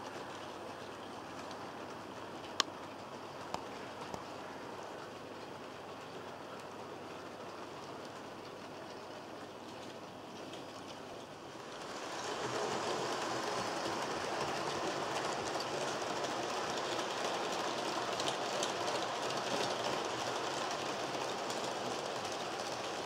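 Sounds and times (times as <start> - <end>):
train wheels clicking over rail joints: 9.6 - 23.0.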